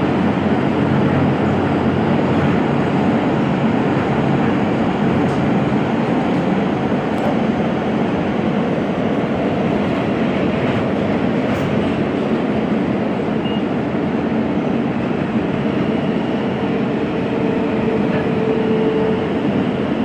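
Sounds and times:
subway wheels rumbling on rail: 0.0 - 20.0.

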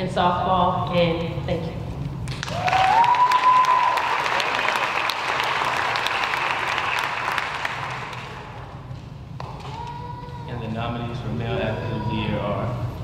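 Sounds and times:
audience applauding: 2.3 - 8.8.

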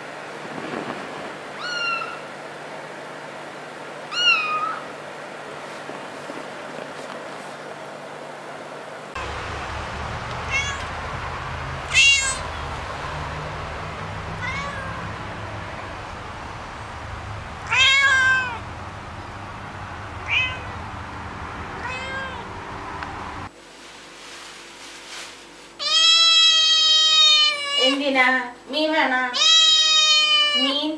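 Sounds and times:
cat meowing: 1.6 - 2.3, 4.1 - 4.9, 10.1 - 11.1, 11.8 - 18.7, 20.0 - 21.0, 21.8 - 22.5, 25.8 - 28.0, 29.4 - 30.8.

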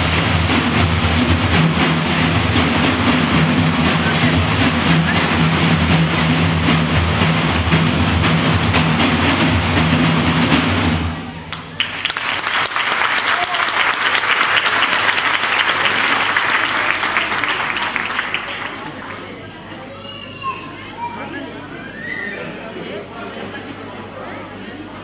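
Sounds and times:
frame drums playing: 0.0 - 11.4
audience applause: 11.5 - 19.7.

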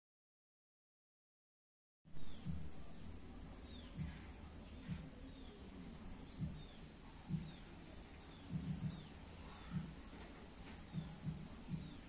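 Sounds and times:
small bird chirping: 2.1 - 10.0, 10.8 - 12.0
soft low thumps: 2.1 - 12.0.

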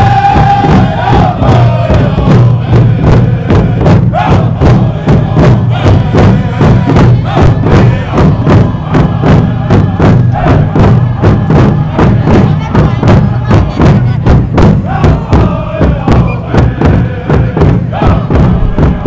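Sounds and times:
crowd chanting: 0.0 - 19.0
drum beaten in steady rhythm: 0.0 - 19.0.

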